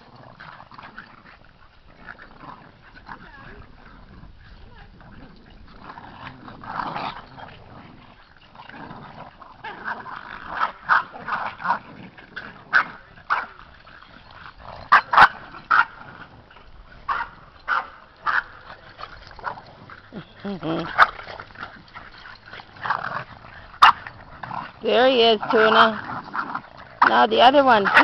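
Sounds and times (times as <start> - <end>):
puppies barking: 12.7 - 28.0.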